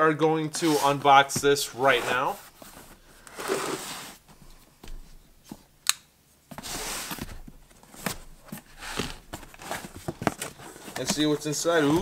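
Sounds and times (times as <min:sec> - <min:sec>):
cardboard scraping and rustling: 0:00.5 - 0:04.3, 0:06.5 - 0:12.0.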